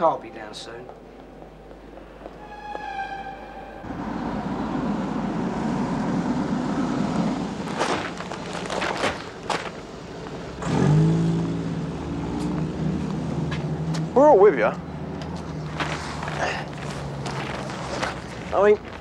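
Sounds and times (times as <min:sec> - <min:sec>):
traffic rumble: 0:00.0 - 0:19.0
heavy bags thudding: 0:07.6 - 0:09.9
engine revving: 0:10.5 - 0:14.2.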